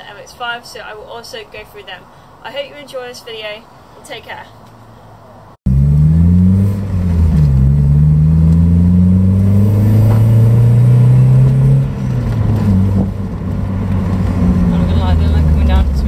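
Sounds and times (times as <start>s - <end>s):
car engine accelerating: 5.7s - 16.0s.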